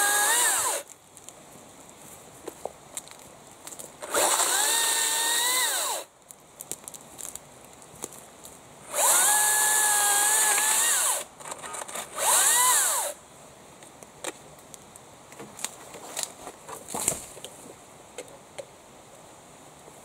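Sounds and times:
battery chainsaw whining: 0.0 - 0.8, 4.0 - 6.1, 8.9 - 13.2
twigs snapping underfoot: 6.2 - 8.6.

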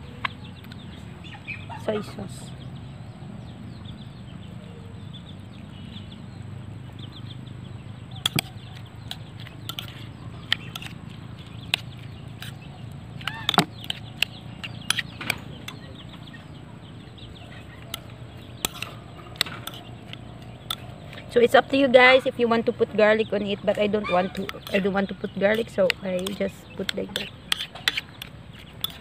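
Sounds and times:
steady low hum: 0.0 - 29.0
chickens clucking: 7.8 - 21.4, 22.0 - 29.0.

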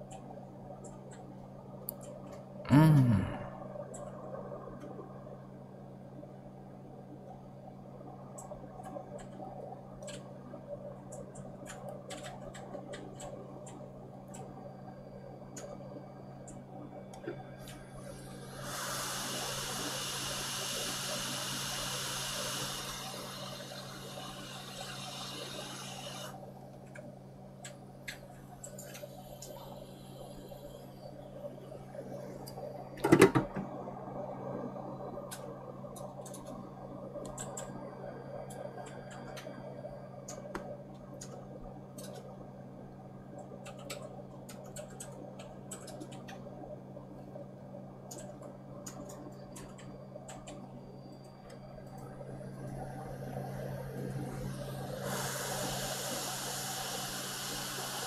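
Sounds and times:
steady electrical hum: 0.0 - 58.0
hiss: 18.0 - 26.4, 54.5 - 58.0.

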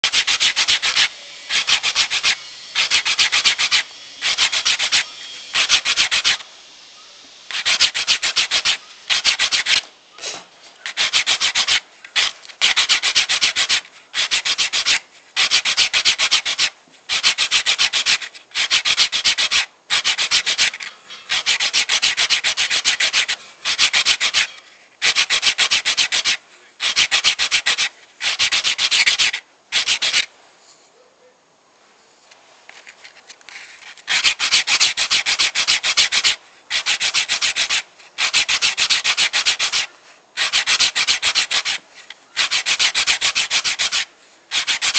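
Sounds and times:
sandpaper scratching wood: 0.0 - 30.3, 33.5 - 44.9.

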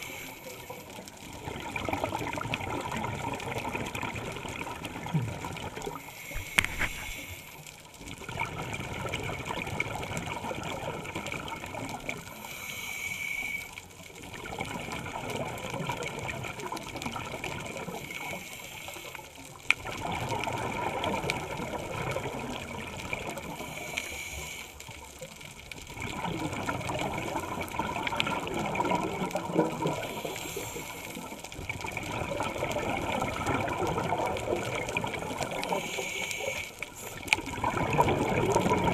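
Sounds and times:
regulator inhale hiss: 0.0 - 0.9, 6.0 - 7.8, 12.3 - 13.9, 17.8 - 19.6, 23.5 - 25.1, 29.9 - 31.5, 35.5 - 37.4
exhaled bubbles rushing: 1.3 - 7.4, 8.2 - 12.3, 19.8 - 23.6, 25.9 - 30.2, 31.6 - 35.8, 37.2 - 38.9.

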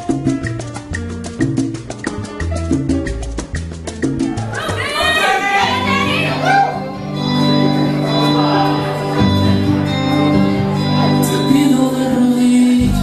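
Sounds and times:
bachata music: 0.0 - 13.0
person singing: 4.4 - 13.0.

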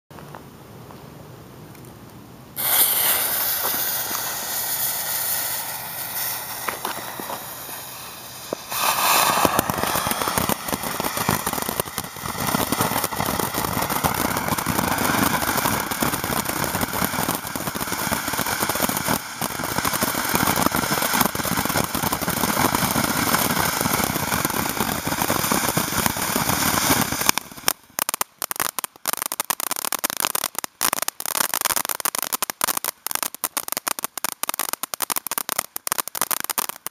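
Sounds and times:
firework crackling pops: 2.6 - 36.9
firework hissing: 2.6 - 36.9.

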